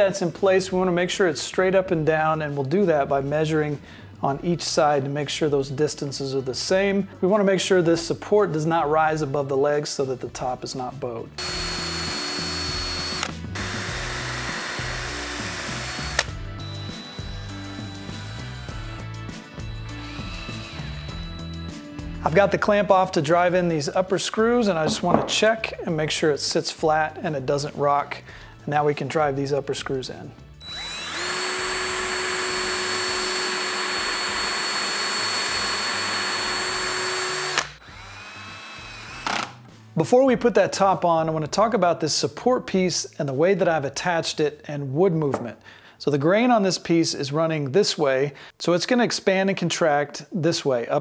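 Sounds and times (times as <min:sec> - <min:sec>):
drill clutch click: 0:11.4 - 0:18.9, 0:30.7 - 0:39.6
cordless drill driving screws: 0:11.4 - 0:21.7, 0:30.6 - 0:39.6.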